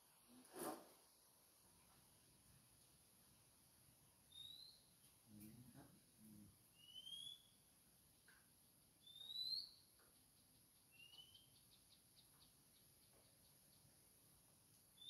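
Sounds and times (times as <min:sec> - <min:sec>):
bird whistling calls: 0:04.3 - 0:04.8, 0:06.8 - 0:07.6, 0:09.0 - 0:09.8, 0:10.9 - 0:11.6
faint ticks: 0:08.2 - 0:08.5, 0:09.9 - 0:15.0.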